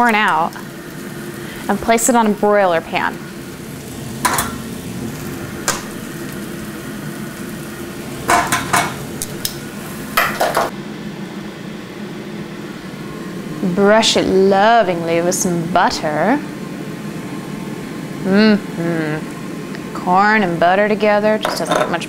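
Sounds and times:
steady low hum and hiss: 0:00.0 - 0:22.0
metal tongs clinking on pots: 0:04.2 - 0:04.6, 0:08.3 - 0:09.6, 0:10.2 - 0:10.7, 0:21.4 - 0:22.0.

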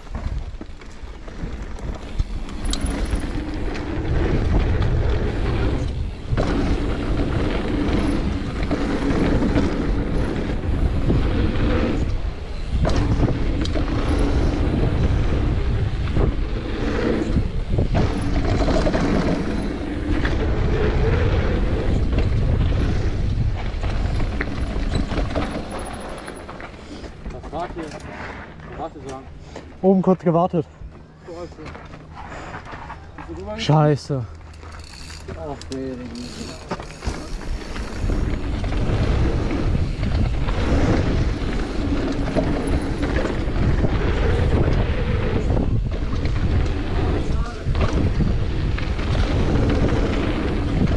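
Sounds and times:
wind noise on microphone: 0:00.0 - 0:27.2, 0:36.5 - 0:50.9
bike tyres rolling and rattling: 0:00.0 - 0:50.9.

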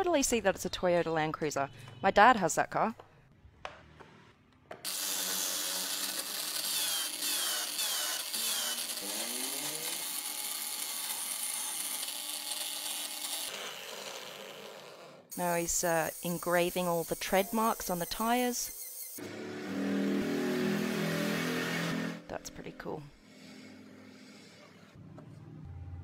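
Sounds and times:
drill motor whirring: 0:04.9 - 0:22.2
chisel scraping turning wood: 0:23.2 - 0:24.9.

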